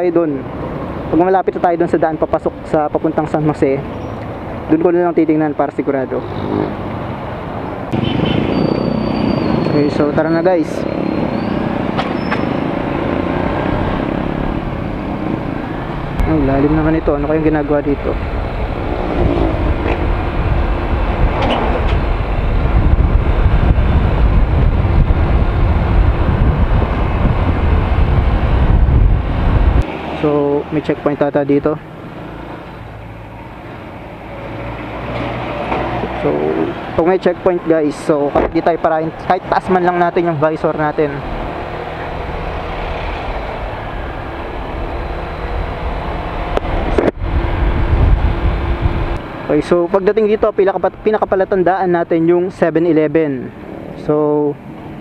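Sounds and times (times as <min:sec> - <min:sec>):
road rumble: 0:00.0 - 0:55.0
wind: 0:00.0 - 0:55.0
scooter engine cruising: 0:10.8 - 0:16.5
wind rush on microphone: 0:13.6 - 0:29.9, 0:41.2 - 0:49.3.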